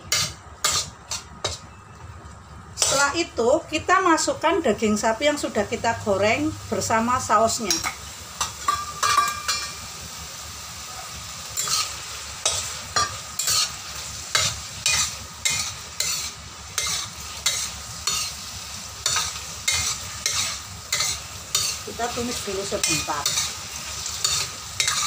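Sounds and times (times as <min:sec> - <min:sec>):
food sizzling: 0:00.0 - 0:01.7, 0:02.5 - 0:25.0
spatula scraping a metal wok: 0:00.0 - 0:01.7, 0:02.8 - 0:03.2, 0:11.5 - 0:25.0.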